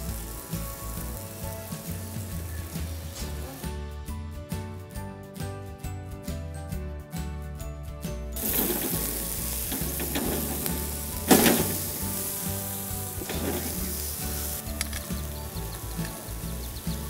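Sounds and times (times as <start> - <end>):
meat sizzling on a grill: 0.0 - 3.8, 8.4 - 17.0
background music: 0.0 - 17.0.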